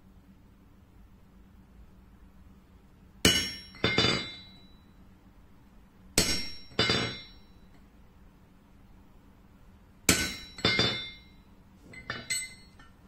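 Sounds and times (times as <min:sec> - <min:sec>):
hammer striking chisel on metal: 0:03.2 - 0:04.8, 0:06.2 - 0:07.7, 0:10.1 - 0:13.0.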